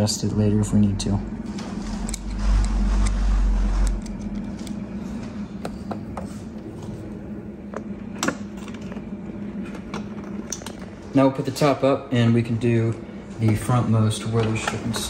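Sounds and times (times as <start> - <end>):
steady low hum: 0.0 - 15.0
dull low rumble: 0.2 - 8.1.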